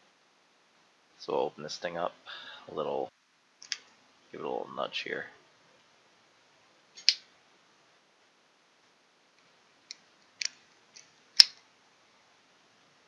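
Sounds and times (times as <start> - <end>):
sharp plastic clicks: 7.0 - 7.3, 9.9 - 11.7.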